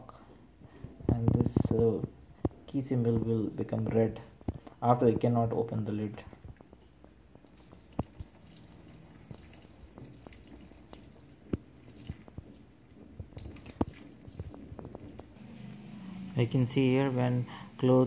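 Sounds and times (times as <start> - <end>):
water drips: 6.6 - 15.4
water trickling into washing machine: 7.3 - 15.4
low hum: 14.9 - 17.8.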